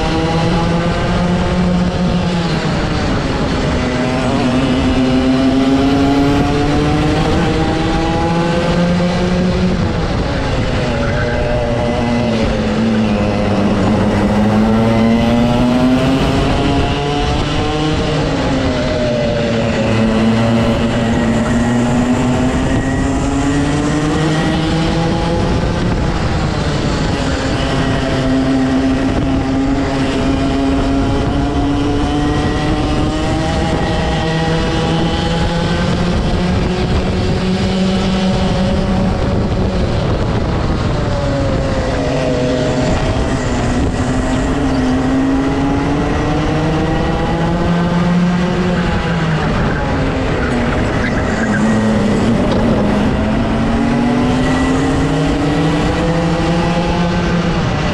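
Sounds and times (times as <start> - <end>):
kart engine revving: 0.0 - 57.9.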